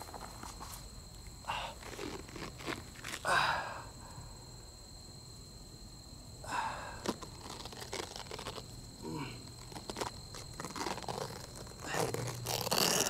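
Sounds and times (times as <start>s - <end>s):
man breathing hard: 3.3s - 4.4s, 6.4s - 7.1s
rustling: 7.0s - 13.0s.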